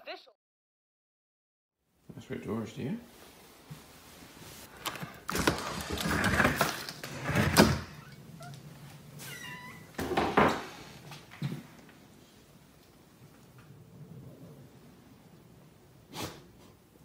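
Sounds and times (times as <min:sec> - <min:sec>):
door pulled open: 0:04.7 - 0:08.6, 0:09.2 - 0:10.9
dog whining: 0:07.9 - 0:09.9.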